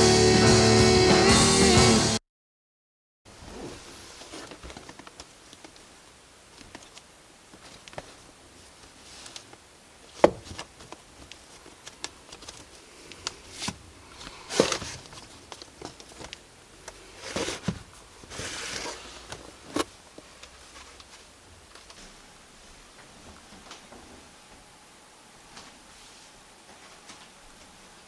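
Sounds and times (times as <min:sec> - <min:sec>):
record sleeves rustling: 0:03.3 - 0:22.3.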